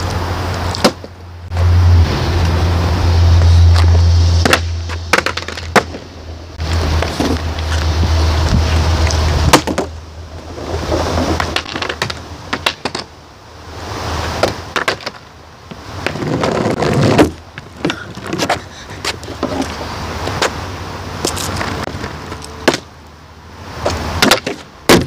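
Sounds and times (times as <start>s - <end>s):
skateboard wheels rolling on asphalt: 0.0s - 25.0s
wind rumble on microphone: 6.6s - 9.7s.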